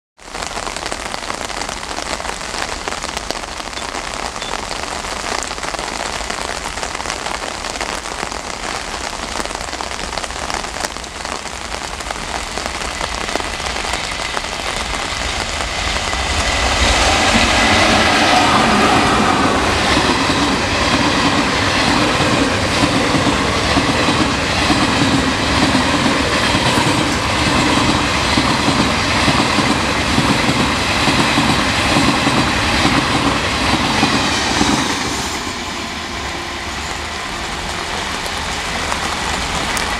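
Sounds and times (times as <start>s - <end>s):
heavy rain falling: 0.2s - 39.9s
train passing at speed: 11.8s - 39.9s.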